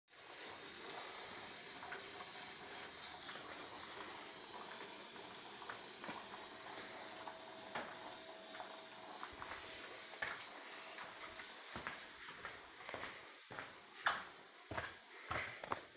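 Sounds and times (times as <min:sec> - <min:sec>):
steady high hiss: 0:00.1 - 0:15.9.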